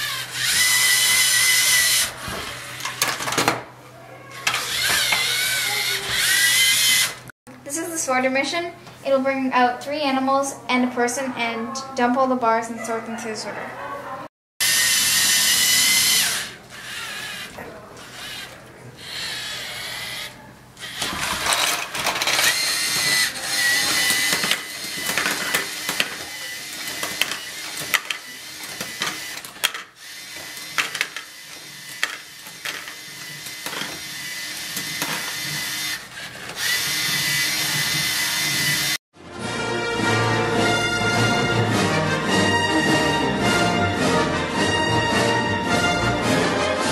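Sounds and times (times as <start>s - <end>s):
robot electric motors whining: 0.0s - 7.3s, 14.6s - 39.0s.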